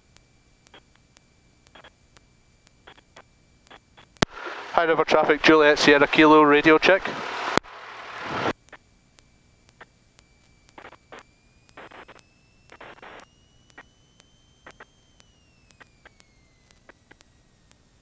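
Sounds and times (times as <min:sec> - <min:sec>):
thin electrical whine: 0:00.0 - 0:18.0
faint clicks and crackles: 0:00.1 - 0:04.4, 0:07.6 - 0:18.0
radio static hiss: 0:00.7 - 0:18.0
radio voice call: 0:04.4 - 0:07.3.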